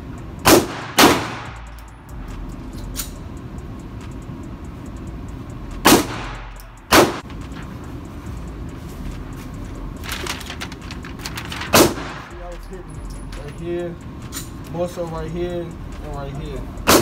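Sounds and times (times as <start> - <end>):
low background rumble: 0.0 - 17.0
gunshots echoing indoors: 0.4 - 1.6, 5.8 - 7.2, 11.7 - 12.3.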